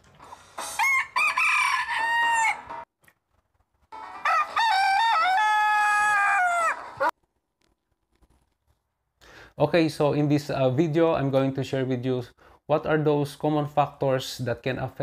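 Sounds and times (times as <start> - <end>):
rooster crowing: 0.8 - 2.8, 4.2 - 7.1.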